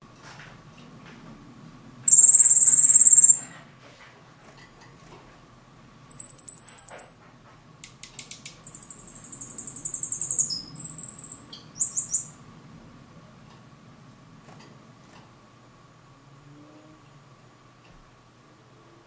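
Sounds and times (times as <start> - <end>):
bird singing trills: 2.1 - 3.5, 6.1 - 7.2, 8.1 - 12.4
bird clicks: 7.8 - 9.7.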